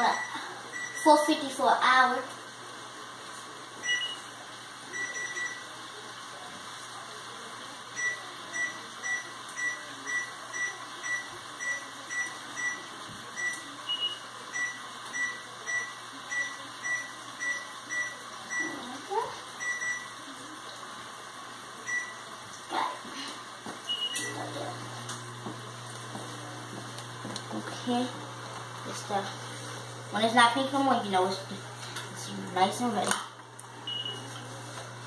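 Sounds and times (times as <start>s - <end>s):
oven control panel beeping: 3.8s - 4.3s, 8.0s - 18.8s, 21.9s - 22.3s, 23.9s - 25.2s, 33.8s - 34.5s
higher-pitched beep: 33.9s - 34.3s.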